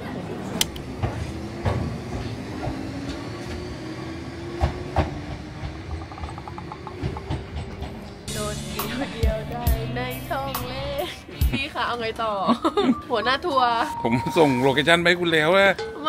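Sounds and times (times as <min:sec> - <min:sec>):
train wheel knocks: 0:04.6 - 0:08.2.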